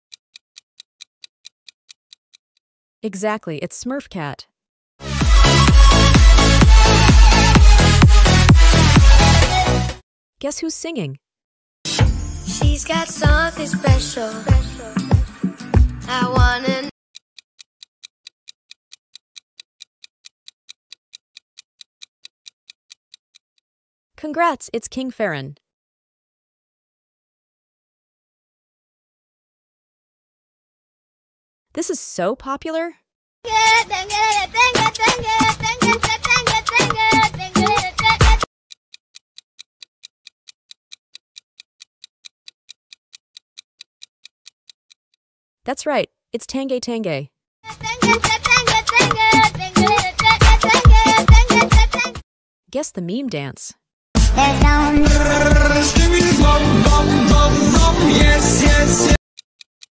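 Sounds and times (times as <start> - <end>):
clock-like timer ticking: 0.1 - 2.4, 5.2 - 9.4, 15.2 - 23.4, 33.5 - 45.0, 47.7 - 52.2, 59.4 - 59.9
countdown timer ticking: 5.0 - 9.9, 11.9 - 16.9, 33.6 - 38.5, 47.7 - 52.2, 54.2 - 59.2.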